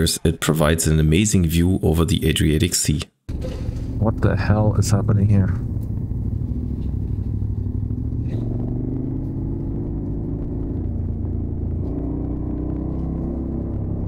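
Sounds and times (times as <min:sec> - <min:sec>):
motorcycle engine rumbling: 0:03.3 - 0:14.0.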